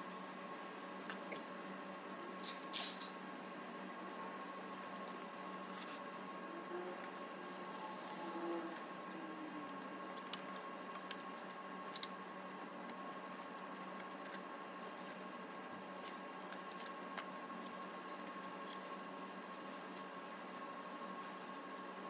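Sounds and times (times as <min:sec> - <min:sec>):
steady low hum: 0:00.0 - 0:22.0
thin high whine: 0:06.5 - 0:09.8.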